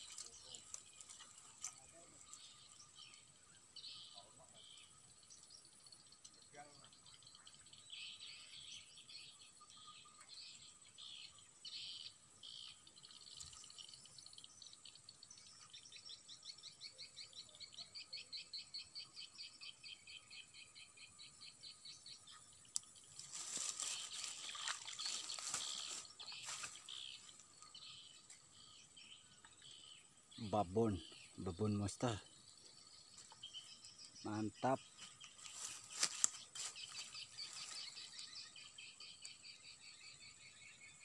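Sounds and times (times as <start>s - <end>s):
faint birds chirping: 0.0s - 41.0s
rhythmic insect chirps: 0.0s - 41.0s
rustling and handling noise: 23.1s - 27.4s, 35.0s - 38.0s.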